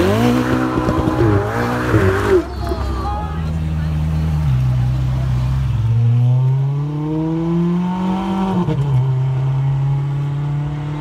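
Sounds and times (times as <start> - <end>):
sports car engine accelerating: 0.0 - 2.8.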